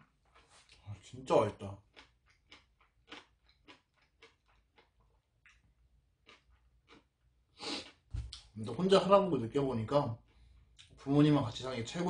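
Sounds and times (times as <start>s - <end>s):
person chewing food: 0.0s - 8.5s, 10.2s - 11.0s.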